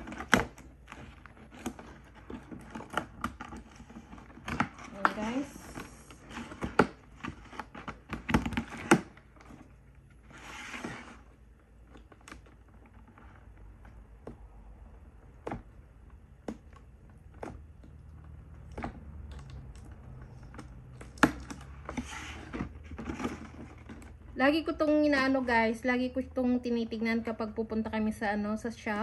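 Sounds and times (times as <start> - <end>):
cardboard rustle: 0.0 - 14.2, 21.4 - 24.4.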